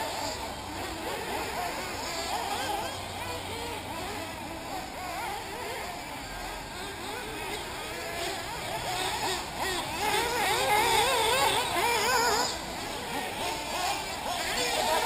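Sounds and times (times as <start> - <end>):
rc buggy engines revving: 0.0 - 15.0.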